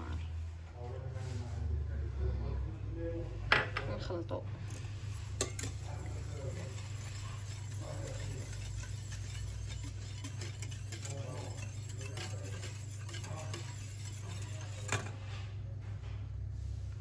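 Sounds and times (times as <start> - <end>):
steady low hum: 0.0 - 17.0
whisk scraping steel saucepan: 4.6 - 15.6.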